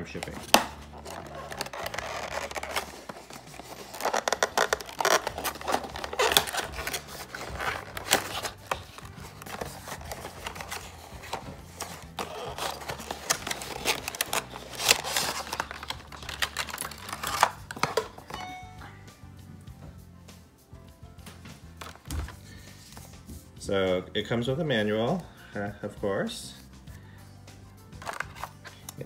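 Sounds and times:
cardboard box unboxing: 0.0 - 18.4, 28.0 - 28.7.

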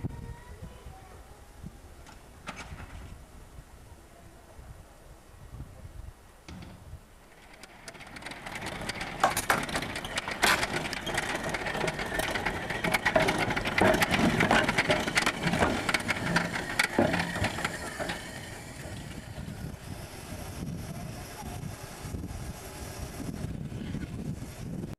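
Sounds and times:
steam locomotive wheels clanking: 6.5 - 24.9.

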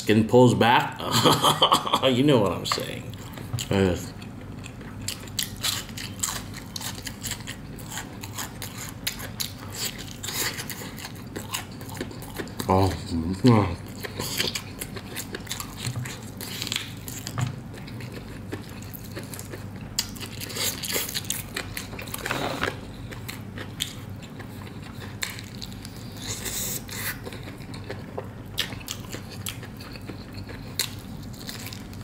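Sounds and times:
crunchy chewing of fried chicken: 2.8 - 32.0.

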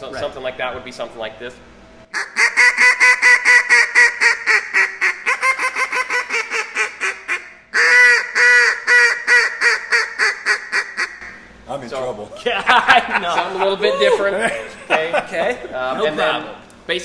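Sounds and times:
duck call quacks: 2.1 - 11.3.

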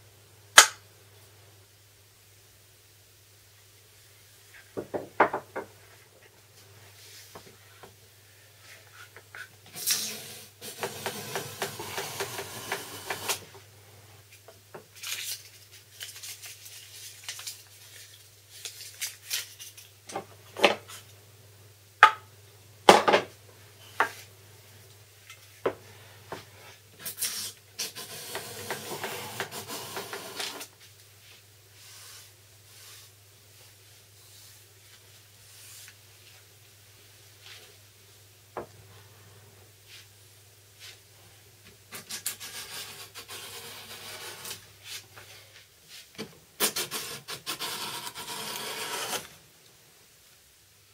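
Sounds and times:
plane shaving wood: 10.8 - 13.4, 27.9 - 30.6, 46.7 - 49.3.

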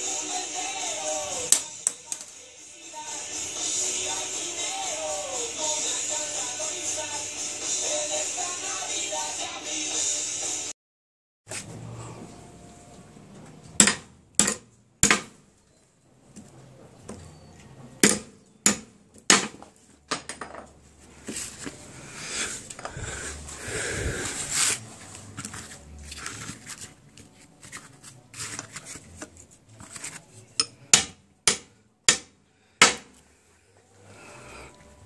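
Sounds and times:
hammer striking metal: 18.0 - 19.5, 30.6 - 33.1
rustling handling noise: 20.8 - 30.6.

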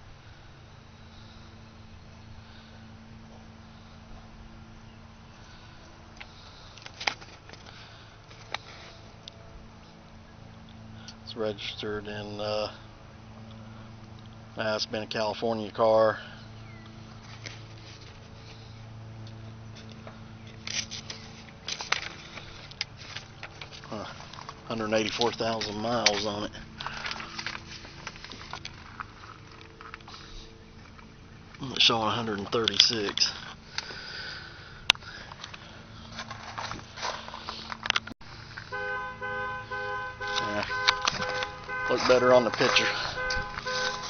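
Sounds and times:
faint low hum: 0.0 - 44.0
car alarm horn honking: 38.6 - 44.0.

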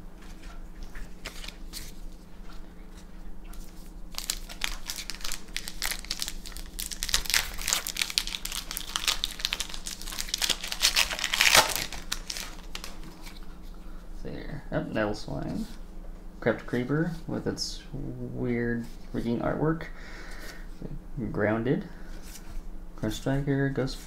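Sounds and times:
foil wrapper crinkling: 4.1 - 13.4.

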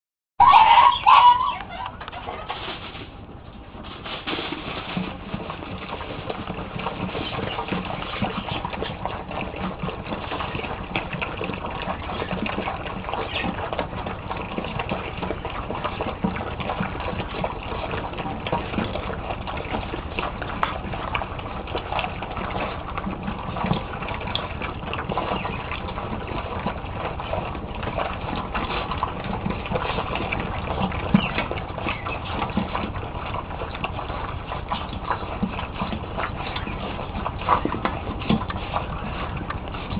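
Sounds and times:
puppies chewing and lapping: 0.4 - 39.9.

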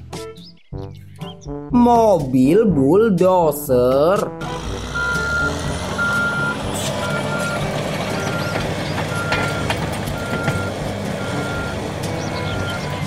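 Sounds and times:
bulldozer diesel engine running: 4.3 - 13.0
backup alarm beeping: 4.4 - 13.0.

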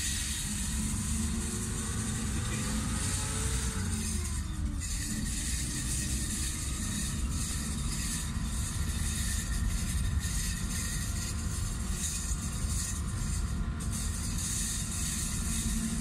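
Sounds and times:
engine and road rumble in vehicle: 0.0 - 16.0.

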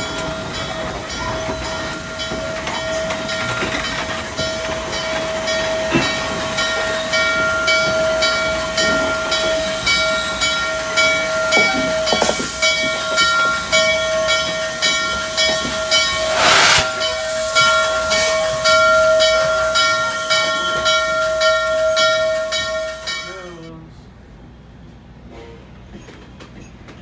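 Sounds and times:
steam locomotive whine: 0.0 - 23.1
pulsing steam hiss: 15.2 - 17.6
steam blast: 16.1 - 17.6.

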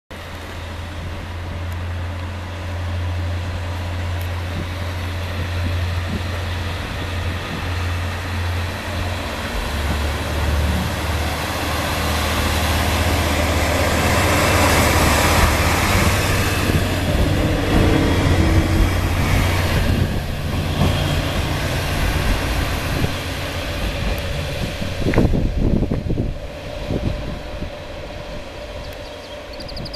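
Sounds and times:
diesel train engine drone: 0.1 - 29.9
wheels on rail: 0.1 - 29.9.

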